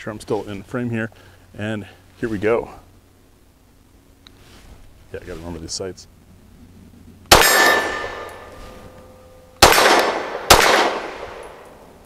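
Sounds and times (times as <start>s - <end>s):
pistol shots with echo: 7.3s - 8.5s, 9.6s - 11.7s
steel target ringing: 7.3s - 11.6s.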